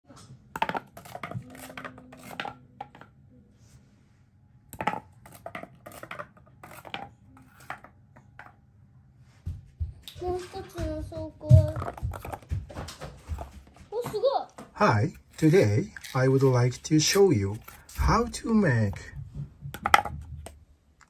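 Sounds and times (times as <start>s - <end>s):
cardboard dominoes tumbling on tile: 0.6s - 3.1s, 4.8s - 8.5s, 11.5s - 13.8s, 14.8s - 20.6s.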